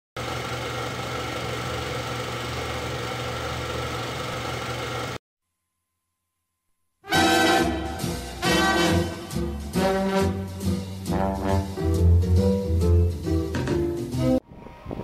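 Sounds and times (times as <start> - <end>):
steady mechanical running noise: 0.2 - 5.2.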